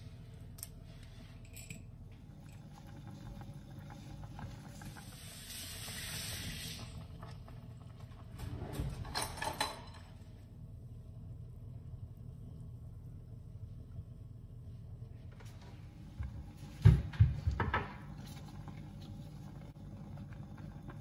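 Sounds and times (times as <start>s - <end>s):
soup boiling in a pot: 2.2s - 8.4s, 17.4s - 21.0s.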